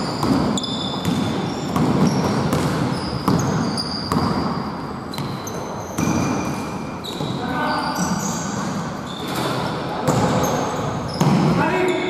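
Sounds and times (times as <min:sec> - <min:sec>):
basketball dribbling on hardwood: 0:00.0 - 0:05.4
sneakers squeaking on court: 0:00.0 - 0:12.0.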